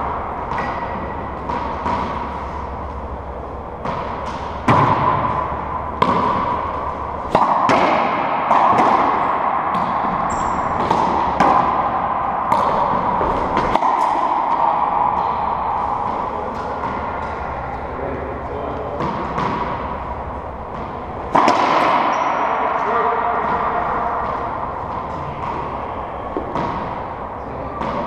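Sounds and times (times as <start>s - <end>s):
racquetball ball cracking: 0.4s - 3.1s, 3.8s - 17.9s, 18.8s - 27.2s.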